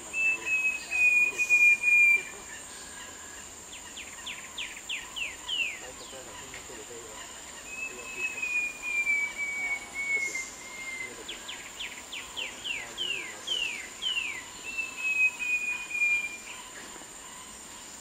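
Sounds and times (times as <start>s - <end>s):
bird singing whistles: 0.0s - 3.0s, 7.7s - 16.6s
high insect drone: 0.0s - 18.0s.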